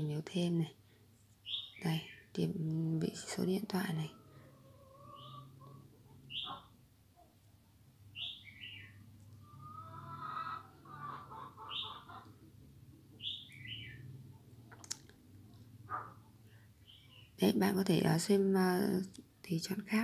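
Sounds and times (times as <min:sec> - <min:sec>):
bird chirping: 0:01.4 - 0:02.6, 0:03.8 - 0:07.4, 0:08.0 - 0:14.6, 0:15.8 - 0:17.5.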